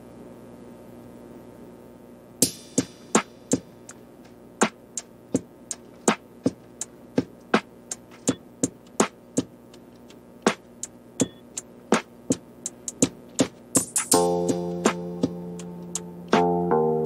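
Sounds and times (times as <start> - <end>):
drum machine hits: 2.4 - 16.8.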